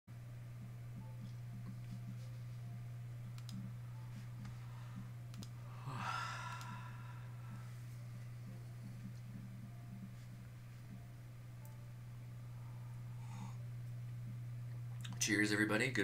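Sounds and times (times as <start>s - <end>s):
steady low hum: 0.1s - 16.0s
faint clicks: 3.3s - 3.6s, 5.3s - 5.6s
man yawning: 5.7s - 7.0s.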